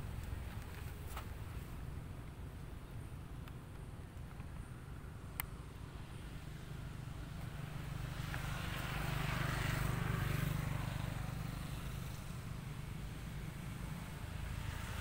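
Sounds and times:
vehicle passing by: 6.0s - 15.0s.

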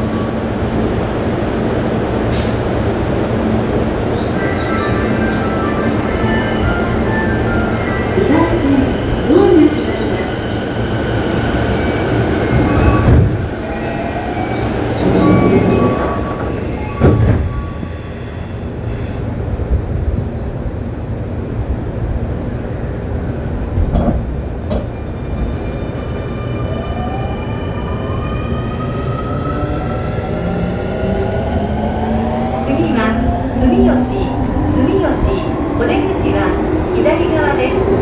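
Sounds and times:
train wheel and motor rumble: 0.0s - 38.0s.

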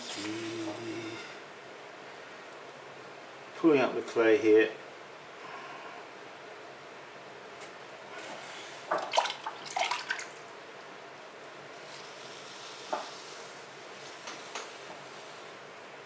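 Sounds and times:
water splashing in a bucket: 9.0s - 10.4s.

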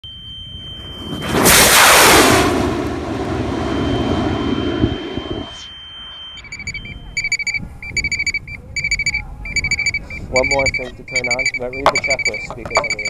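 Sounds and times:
electronic beeping: 0.0s - 13.0s
high electronic tone: 0.0s - 13.0s
rocket motor roaring: 0.7s - 5.8s.

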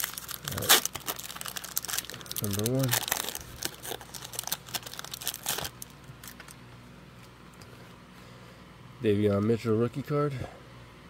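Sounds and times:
foil wrapper crinkling: 0.0s - 6.6s.

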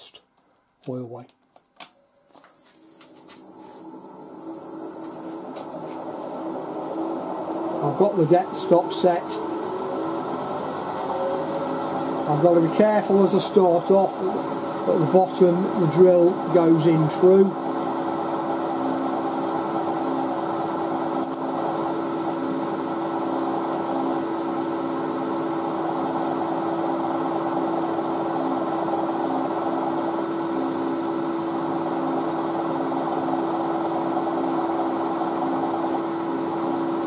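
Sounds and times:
milling machine motor hum: 2.1s - 37.0s.

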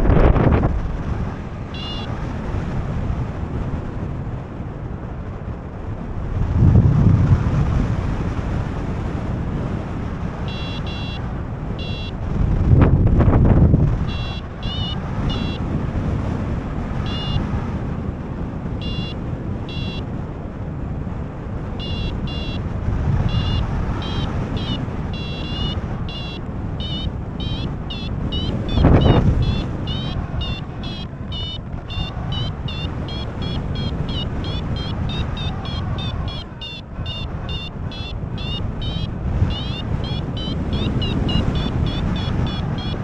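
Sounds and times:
wind rushing on microphone: 0.0s - 43.0s
short high beeps: 1.8s - 2.1s, 10.5s - 11.2s, 11.8s - 12.2s, 14.1s - 15.6s, 17.0s - 17.4s, 18.8s - 20.0s, 21.8s - 22.6s, 23.2s - 43.0s.

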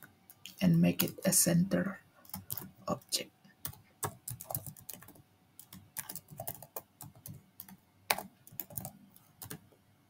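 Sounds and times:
computer keyboard typing: 2.2s - 9.6s.

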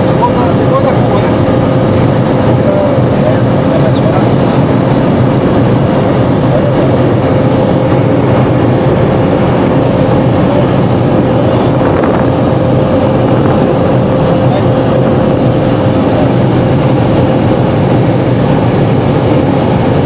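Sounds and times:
turboprop engine droning in cabin: 0.0s - 20.0s.

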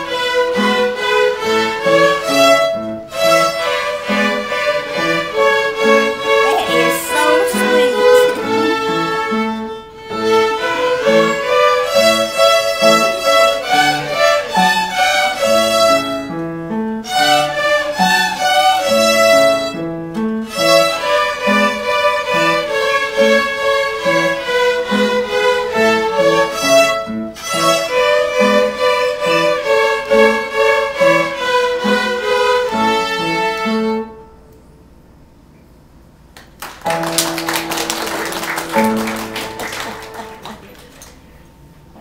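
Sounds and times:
violins playing a tune: 0.0s - 19.8s, 20.4s - 34.1s
applause: 6.5s - 8.7s, 36.4s - 41.2s.

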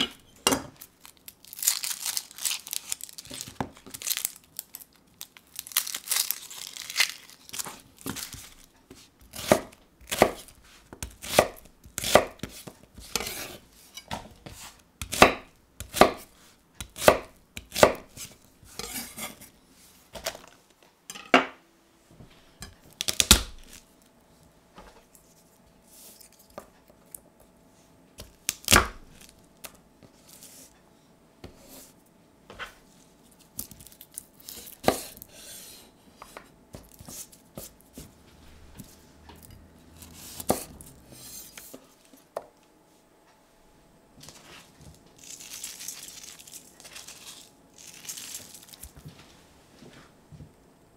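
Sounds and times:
onion skin crinkling: 0.8s - 12.6s, 33.4s - 35.3s, 45.2s - 49.0s
knife chopping on wooden board: 9.3s - 19.0s, 34.8s - 35.5s, 40.2s - 41.3s.

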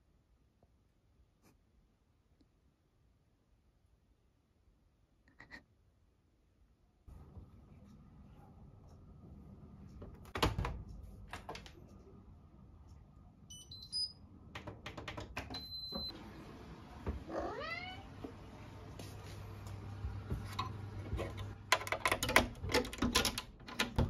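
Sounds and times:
control panel beeping: 13.5s - 14.2s
cat meowing: 17.3s - 18.1s.

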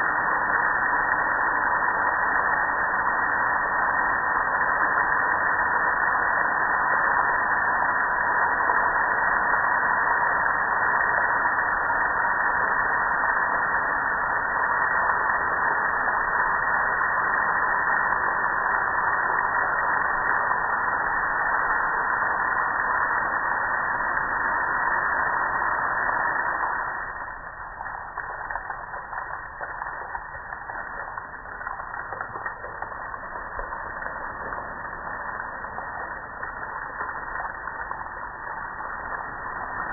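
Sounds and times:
water splashing and dripping: 26.5s - 39.9s.

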